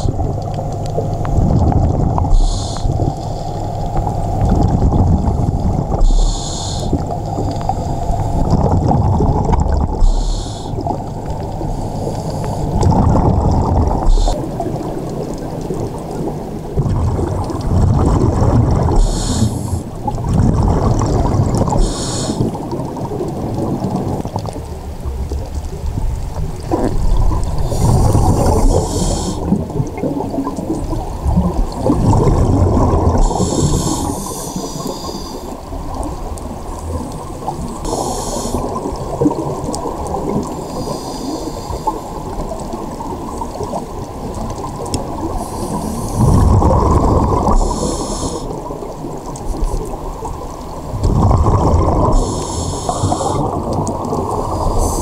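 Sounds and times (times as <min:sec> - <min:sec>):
underwater regulator bubbling: 0:00.0 - 0:55.0
hissy regulator breaths: 0:02.4 - 0:03.6, 0:06.0 - 0:07.0, 0:10.0 - 0:10.9, 0:19.0 - 0:19.8, 0:21.8 - 0:22.4, 0:27.6 - 0:29.5, 0:33.2 - 0:35.5, 0:37.8 - 0:38.8, 0:40.6 - 0:42.0, 0:47.5 - 0:48.5, 0:52.1 - 0:53.4.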